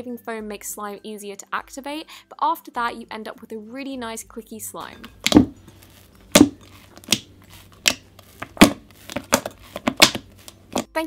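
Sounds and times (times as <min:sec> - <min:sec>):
slime clicking while kneaded: 0:06.3 - 0:10.8.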